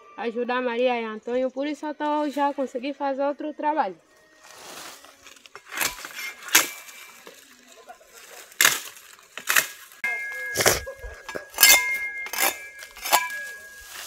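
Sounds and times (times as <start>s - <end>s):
hard objects knocking and clinking: 10.0s - 14.0s.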